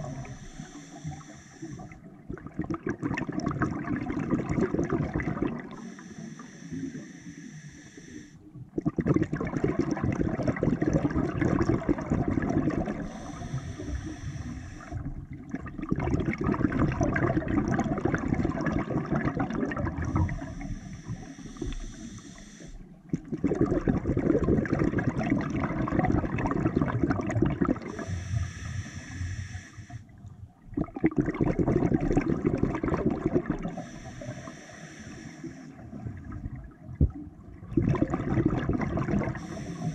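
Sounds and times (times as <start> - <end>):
gurgling exhaled bubbles: 0.0 - 1.2, 1.8 - 5.9, 8.6 - 22.1, 23.0 - 28.2, 30.6 - 34.3, 35.7 - 39.9
regulator hissing inhale: 0.0 - 2.1, 5.7 - 8.5, 13.0 - 15.1, 20.0 - 23.0, 27.9 - 30.2, 33.6 - 36.0, 39.2 - 39.9.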